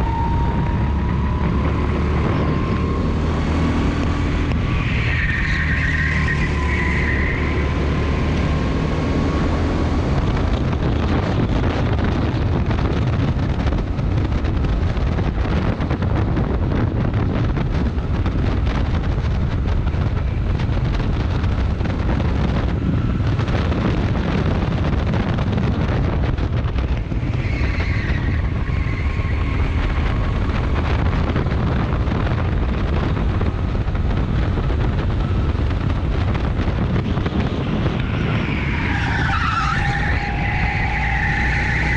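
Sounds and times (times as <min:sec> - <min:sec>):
wind buffeting microphone: 0:00.0 - 0:41.9
tyre squeal: 0:04.6 - 0:07.8, 0:27.0 - 0:30.6, 0:37.7 - 0:41.9.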